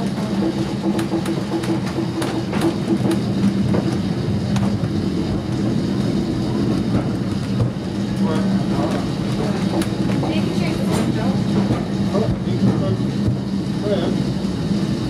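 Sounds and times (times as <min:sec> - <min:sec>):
tram running on track: 0:00.0 - 0:15.0.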